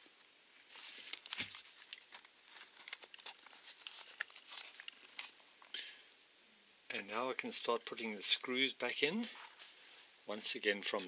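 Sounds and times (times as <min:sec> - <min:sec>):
plastic clicks and scrapes: 0:01.1 - 0:05.4.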